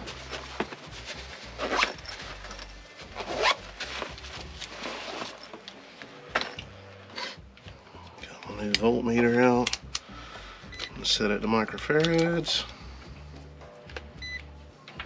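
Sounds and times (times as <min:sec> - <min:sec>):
zipper scrapes: 0:00.0 - 0:05.6
rustling: 0:00.0 - 0:07.2.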